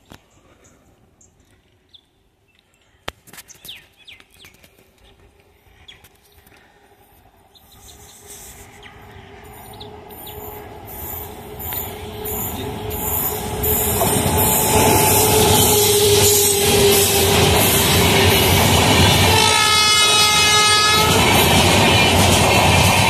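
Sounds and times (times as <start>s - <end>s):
small birds chirping: 0.0s - 6.8s, 7.4s - 13.0s
approaching train rumble and hum: 5.0s - 23.0s.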